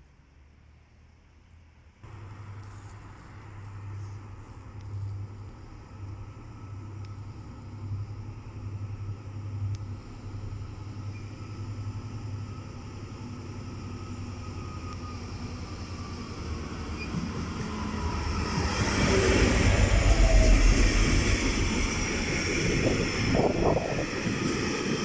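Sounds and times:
diesel locomotive engine: 2.0s - 25.0s.

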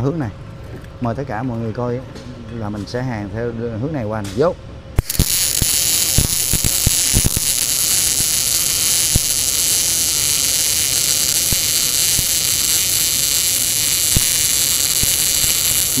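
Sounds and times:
welding arc hissing and popping: 5.0s - 16.0s.

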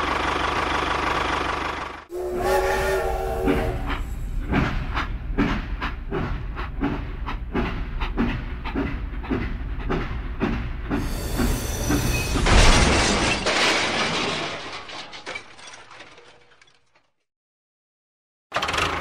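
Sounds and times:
hiss: 11.0s - 12.4s
train crashing into toy bricks: 12.2s - 17.0s.

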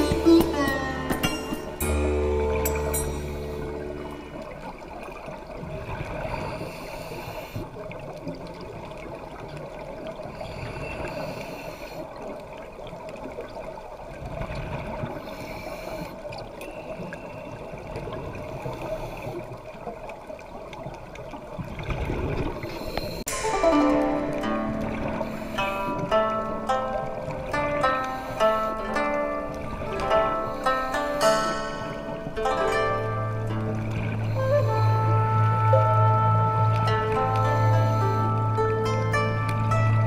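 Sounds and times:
steady underwater hiss: 1.4s - 20.4s, 21.1s - 32.4s, 33.2s - 40.0s.

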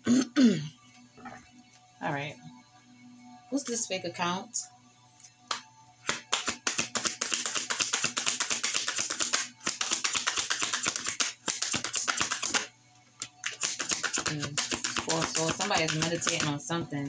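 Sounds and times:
cards being shuffled: 5.5s - 16.6s.

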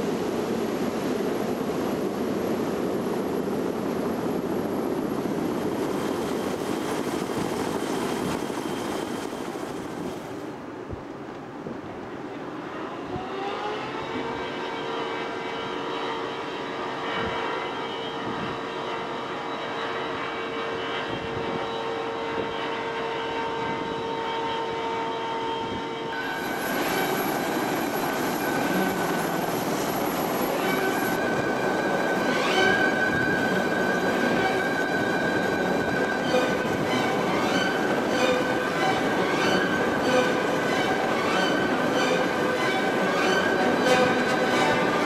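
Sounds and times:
helicopter turbine whine: 0.0s - 10.5s, 26.2s - 45.0s.

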